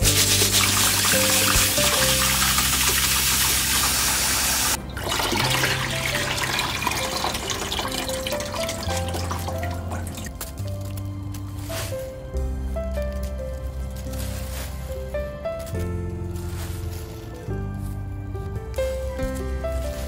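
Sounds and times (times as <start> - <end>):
tap water running into bowl: 0.0 - 10.3
water sloshing and dripping: 0.0 - 11.0
background music: 0.0 - 20.0.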